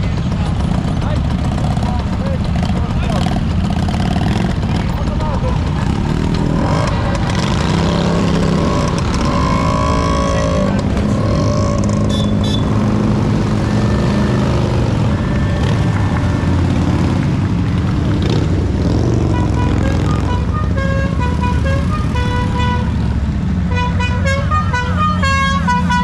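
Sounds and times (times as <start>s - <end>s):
motorcycles riding past: 0.0s - 23.7s.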